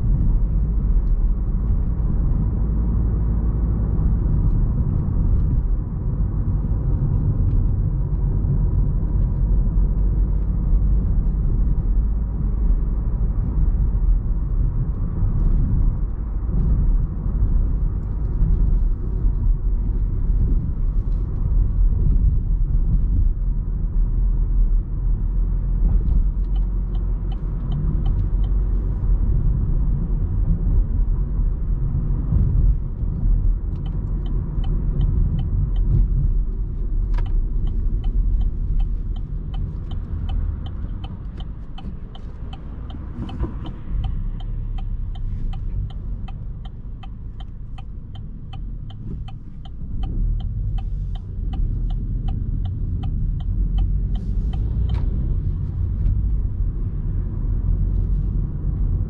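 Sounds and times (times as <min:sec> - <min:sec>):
car engine low rumble: 0:00.0 - 0:59.0
turn signal ticking: 0:25.8 - 0:31.0, 0:32.2 - 0:59.0.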